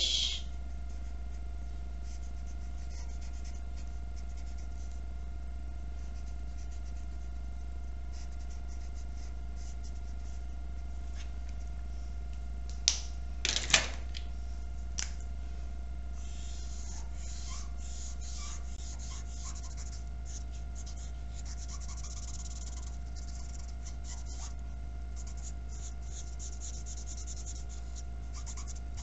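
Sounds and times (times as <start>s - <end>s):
steady electrical hum: 0.0s - 29.0s
marker scratching on paper: 2.0s - 5.0s, 6.0s - 7.4s, 8.1s - 10.5s, 16.2s - 24.6s, 25.2s - 29.0s.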